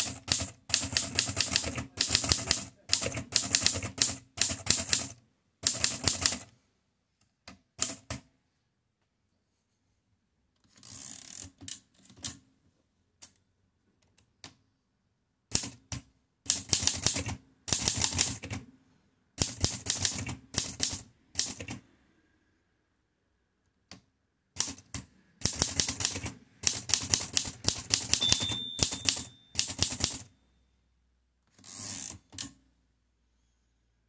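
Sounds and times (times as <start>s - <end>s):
typewriter keystroke clacks: 0.0s - 6.5s, 15.5s - 18.6s, 19.4s - 21.8s, 24.6s - 30.3s.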